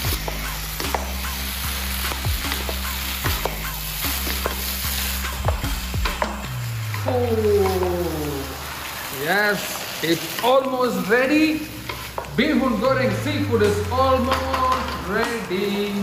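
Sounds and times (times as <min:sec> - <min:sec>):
background music with bass: 0:00.0 - 0:09.0, 0:11.6 - 0:16.0
noodles sizzling in a pan: 0:00.0 - 0:16.0
wooden spatulas scraping pan: 0:11.8 - 0:15.5.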